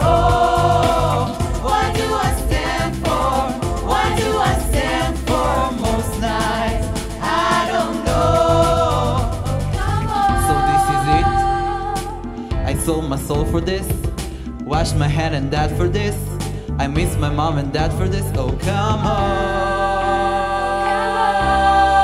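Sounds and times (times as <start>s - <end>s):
vocal ensemble singing in harmony: 0.0s - 12.9s, 18.5s - 22.0s
pop backing track: 0.0s - 22.0s.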